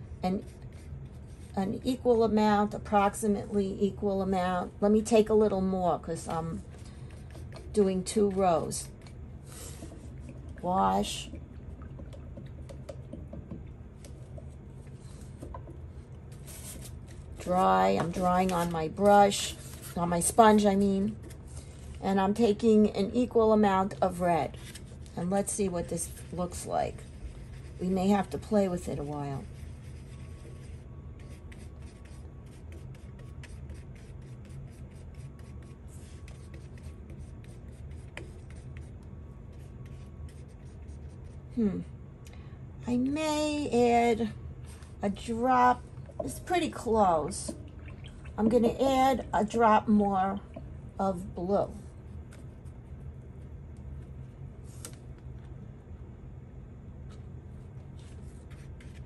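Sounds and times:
steady low hum: 0.0 - 59.0
paintbrush tapping in plastic cup: 12.0 - 14.5.

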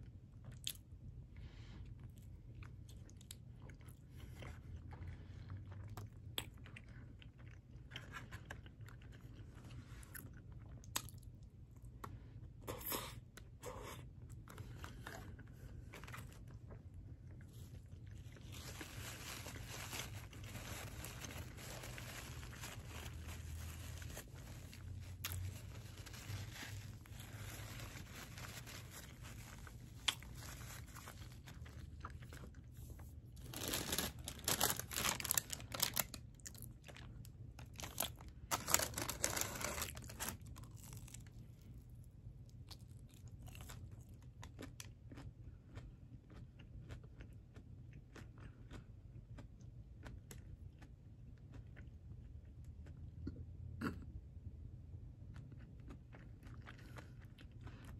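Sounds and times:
close-up chewing: 1.8 - 54.0, 55.2 - 57.9
paper bag rustling: 18.3 - 31.8, 33.4 - 36.1, 37.8 - 40.4.

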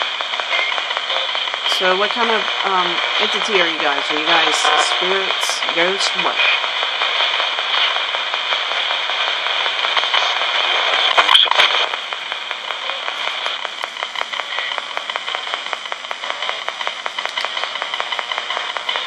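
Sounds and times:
crackling burst: 0.0 - 19.0
radio static hiss: 0.0 - 19.0
radio tuning clicks: 0.0 - 19.0.

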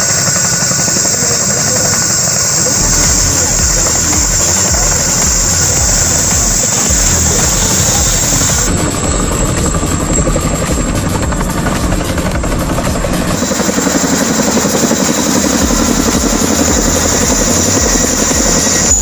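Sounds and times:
helicopter rotors chopping: 0.0 - 19.0.

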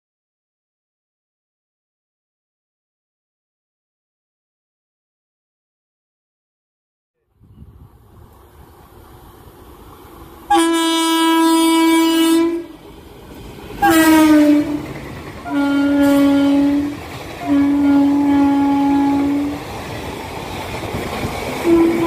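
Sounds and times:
train rumbling past: 7.3 - 22.0
locomotive air horn blasts: 10.5 - 12.8, 13.8 - 19.6, 21.6 - 22.0.

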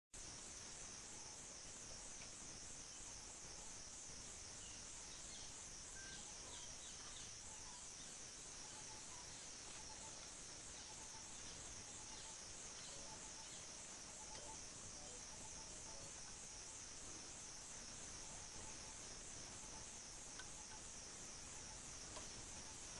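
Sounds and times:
pulsing insect chorus: 0.2 - 22.9
faint bird chirps: 1.0 - 17.3, 17.9 - 22.9.

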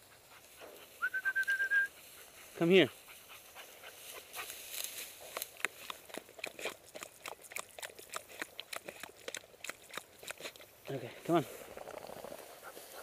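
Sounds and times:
footsteps crunching through dry grass: 1.9 - 6.9, 10.4 - 13.0.

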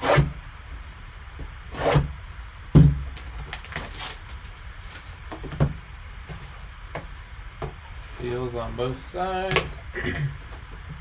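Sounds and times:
plastic wrap crinkling: 3.2 - 5.3.

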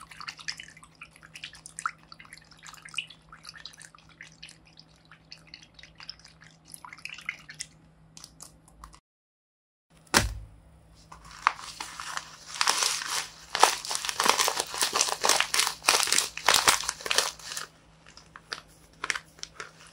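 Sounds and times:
water dripping: 0.0 - 9.0
fingers poking water-filled paper: 11.2 - 19.9.

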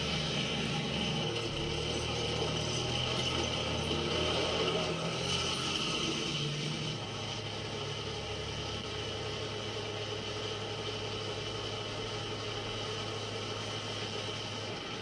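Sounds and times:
vehicle engines humming: 0.0 - 15.0.

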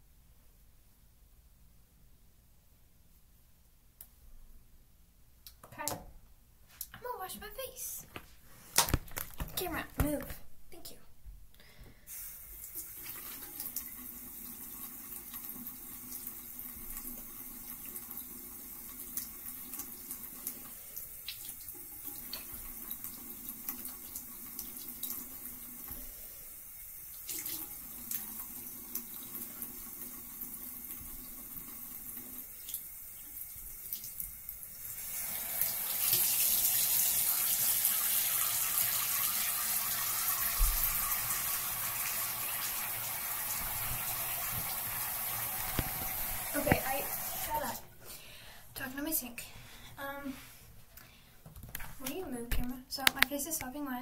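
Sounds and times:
faucet running into sink: 12.2 - 26.1, 26.8 - 47.8.

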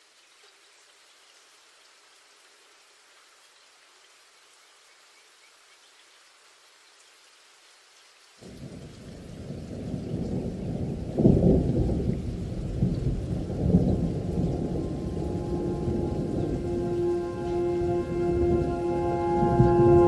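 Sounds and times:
rolling thunder: 8.4 - 20.0.

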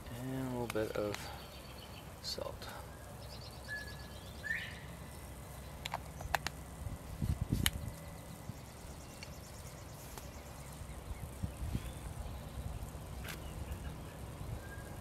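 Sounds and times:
birds trilling faintly: 0.2 - 15.0.

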